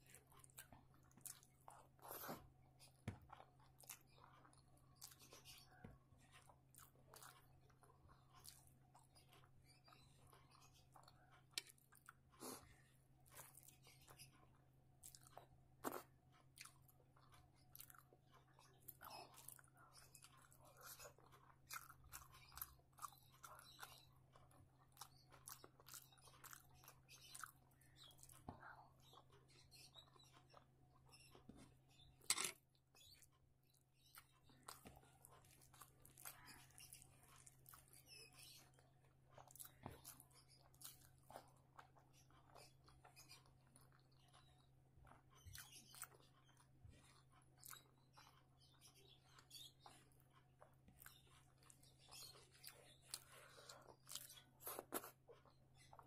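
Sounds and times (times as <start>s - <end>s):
person chewing with mouth clicks: 0.0s - 5.6s, 15.0s - 30.7s, 34.0s - 56.0s.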